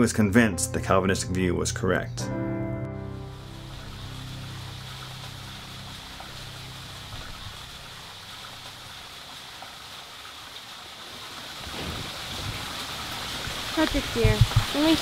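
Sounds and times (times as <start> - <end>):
low held music notes: 0.0 - 9.6
fountain splashing: 3.2 - 15.0.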